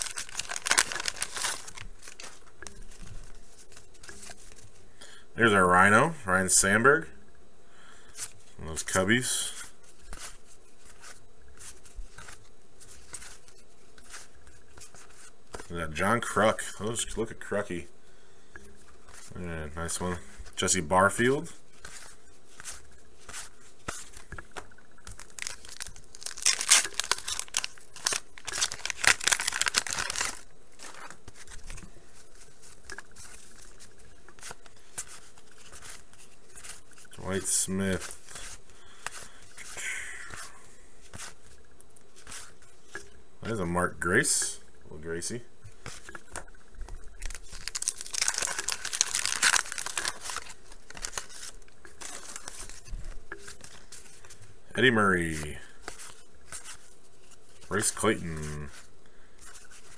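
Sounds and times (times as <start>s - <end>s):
wax paper wrapper tearing: 0.0s - 2.8s, 25.1s - 31.8s, 47.2s - 52.9s
faint rustling of cards: 0.0s - 59.9s.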